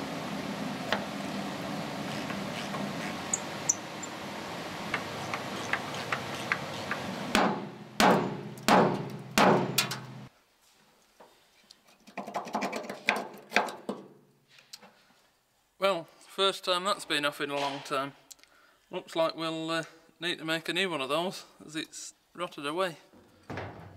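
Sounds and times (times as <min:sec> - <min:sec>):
metal knocks and scrapes: 0:05.3 - 0:10.1
hammer striking steel: 0:06.5 - 0:10.1
background noise: 0:07.3 - 0:23.9.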